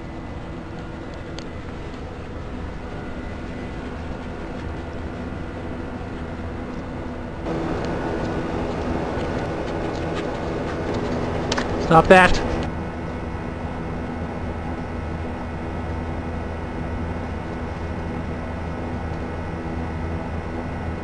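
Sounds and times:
mechanical drone: 0:00.0 - 0:21.0.

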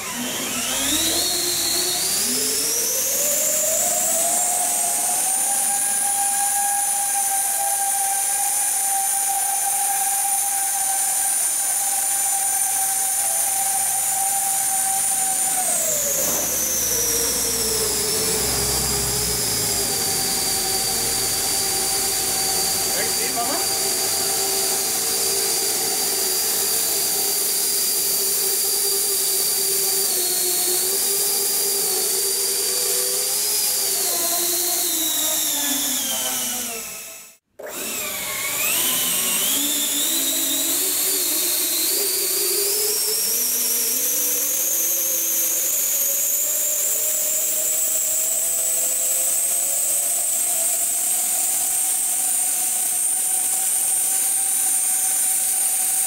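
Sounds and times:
electric fans whining: 0:00.0 - 0:43.3.

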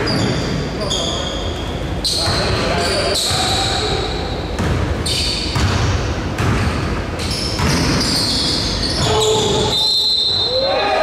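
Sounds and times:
sneakers squeaking on floor: 0:00.0 - 0:10.7
basketball bouncing on hardwood: 0:05.5 - 0:06.8.

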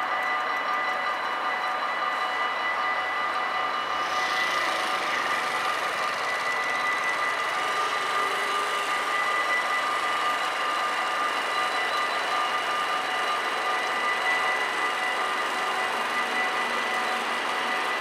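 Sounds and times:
level crossing warning bells: 0:00.0 - 0:18.0
moped engine: 0:04.0 - 0:10.3.

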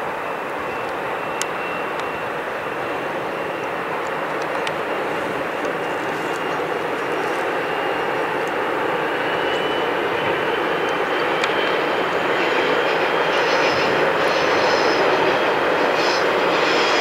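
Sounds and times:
diesel locomotive engine drone: 0:00.0 - 0:17.0
train wagons rumbling: 0:00.6 - 0:17.0.

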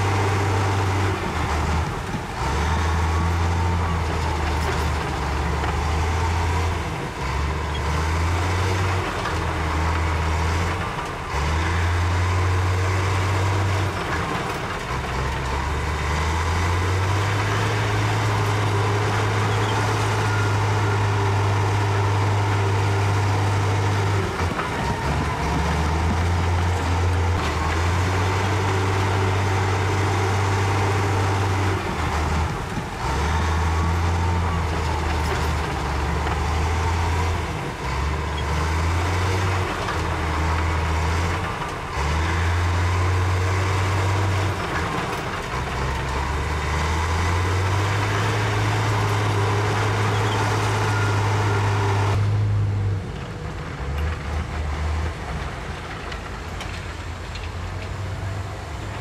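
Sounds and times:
bulldozer diesel engine under load: 0:00.0 - 0:59.0
dump truck engine running: 0:00.0 - 0:59.0.

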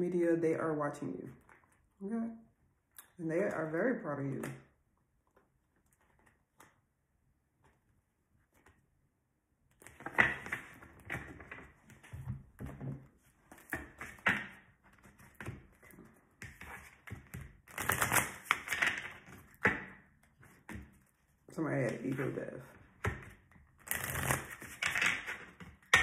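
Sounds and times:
cards being shuffled by hand: 0:09.8 - 0:21.0, 0:23.1 - 0:26.0.

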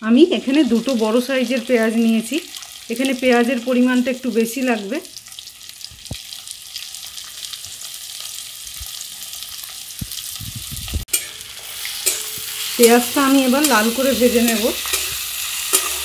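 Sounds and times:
onions sizzling in hot oil: 0:00.0 - 0:16.0.

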